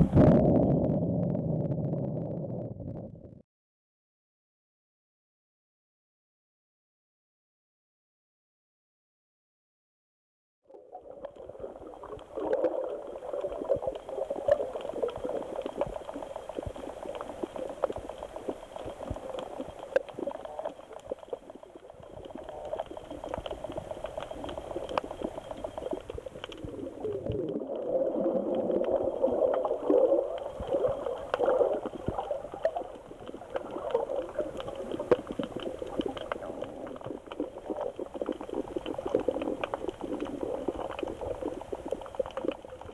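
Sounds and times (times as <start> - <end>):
muffled underwater gurgling and sloshing: 0.0 - 3.4, 10.7 - 42.9
crackle of small clicks: 10.7 - 42.9.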